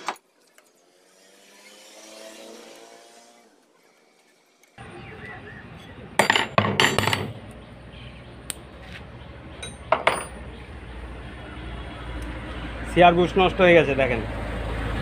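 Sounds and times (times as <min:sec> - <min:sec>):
metal clinks and knocks: 0:06.2 - 0:07.4, 0:09.6 - 0:10.5
tools being set down: 0:06.2 - 0:07.4, 0:09.6 - 0:10.4.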